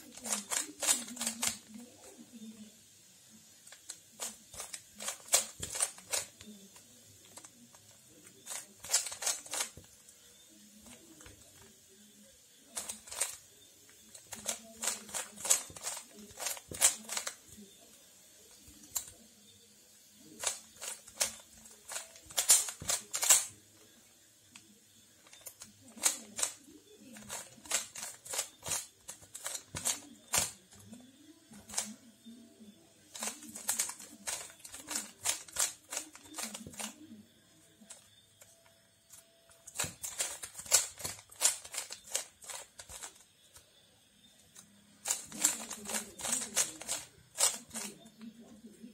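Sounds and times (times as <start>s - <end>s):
puzzle cube clicking as turned: 0.0s - 2.4s, 3.6s - 10.0s, 12.6s - 17.6s, 18.5s - 19.3s, 20.3s - 23.6s, 24.6s - 32.1s, 33.0s - 37.2s, 37.8s - 38.8s, 39.6s - 43.7s, 44.5s - 48.2s.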